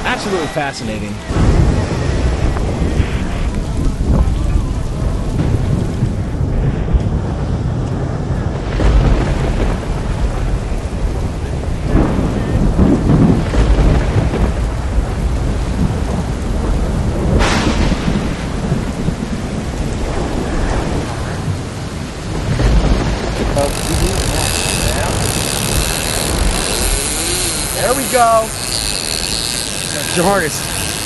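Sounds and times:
surf rushing: 0.0s - 31.0s
wind gusting on microphone: 0.0s - 31.0s.

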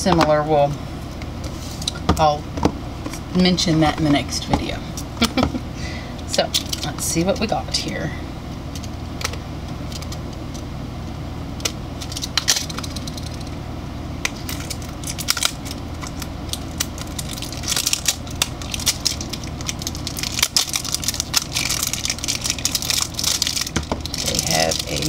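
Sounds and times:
packaging rustling and crinkling: 12.0s - 13.5s, 14.3s - 25.0s.

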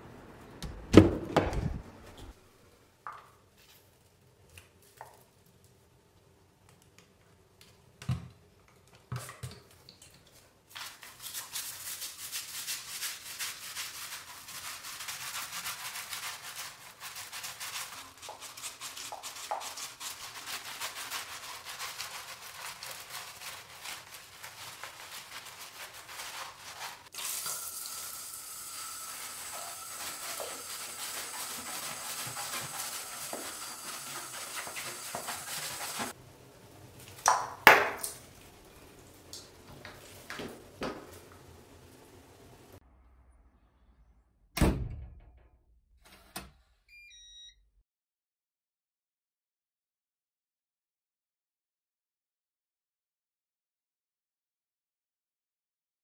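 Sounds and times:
foot scrubbing on bristles: 10.8s - 27.2s, 28.8s - 36.2s
shower water hissing: 10.8s - 37.3s.

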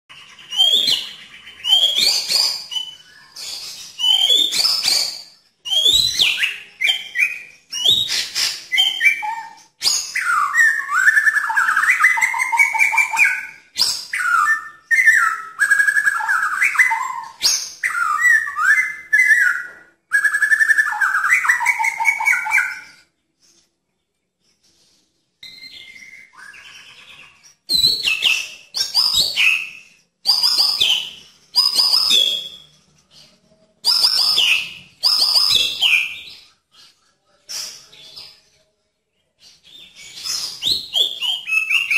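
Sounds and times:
bird singing whistled phrases: 0.1s - 23.1s, 25.4s - 38.4s, 39.4s - 41.9s.

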